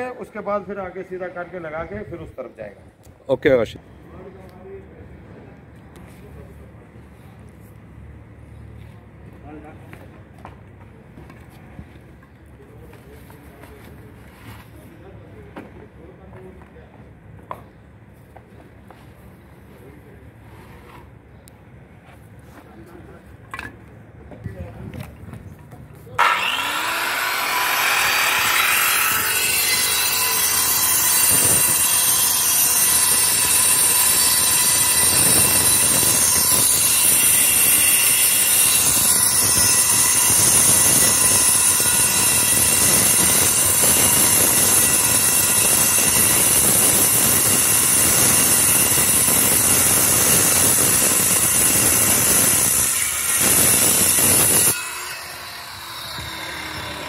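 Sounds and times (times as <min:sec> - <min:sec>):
angle grinder cutting stone: 0:26.2 - 0:57.0.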